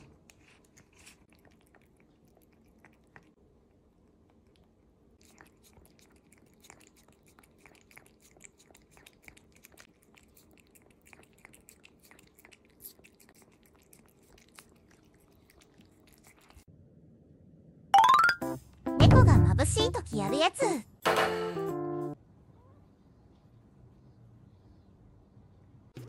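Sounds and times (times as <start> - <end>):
cat licking wet clicks: 0.2 - 3.4, 4.2 - 16.7.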